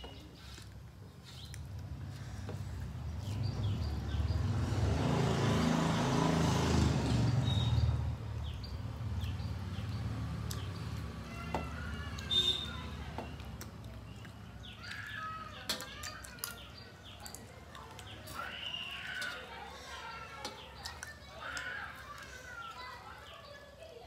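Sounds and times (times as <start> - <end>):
birds chirping: 0.0 - 24.0
vehicle engine rumble passing: 1.2 - 14.1.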